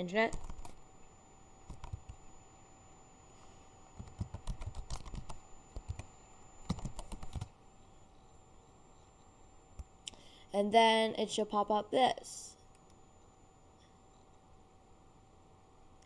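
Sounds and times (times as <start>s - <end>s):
keyboard keys clicking: 4.0s - 6.1s, 6.7s - 7.5s.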